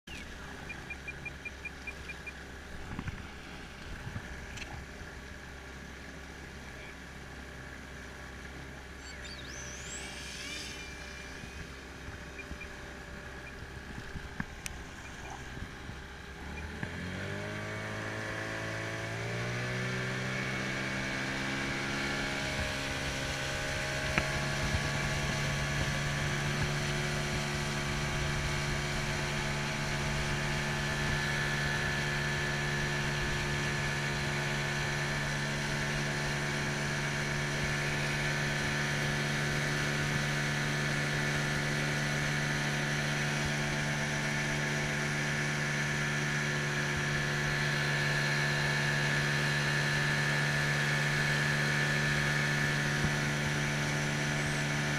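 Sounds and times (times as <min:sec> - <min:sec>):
boat motor running: 0:00.0 - 0:54.9
high rising whine: 0:00.1 - 0:54.9
water and wind noise: 0:00.1 - 0:54.9.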